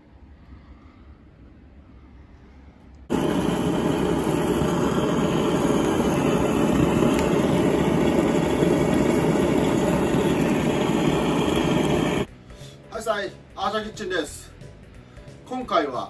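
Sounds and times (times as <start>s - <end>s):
blowtorch flame blasting: 3.1s - 12.3s.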